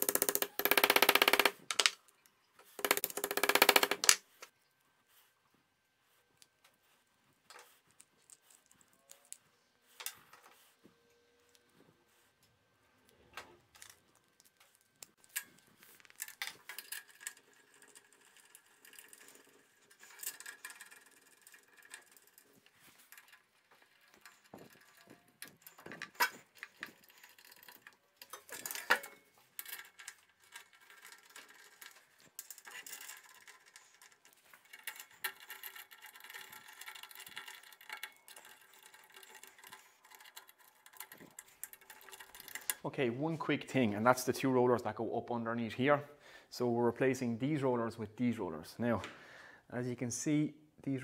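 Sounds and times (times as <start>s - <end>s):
metal parts clicking and knocking: 0.0s - 4.5s, 13.6s - 42.8s
faint scraping and rattling: 3.7s - 44.6s.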